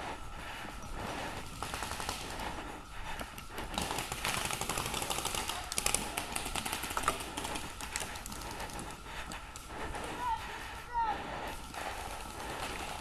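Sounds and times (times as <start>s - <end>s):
paintball markers firing: 3.7s - 8.9s.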